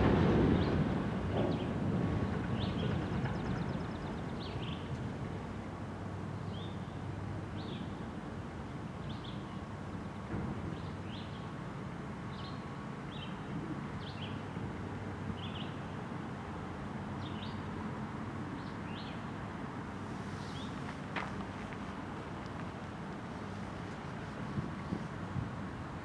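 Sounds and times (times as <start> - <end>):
freight train rumbling on rails: 0.0 - 6.4, 20.0 - 26.0.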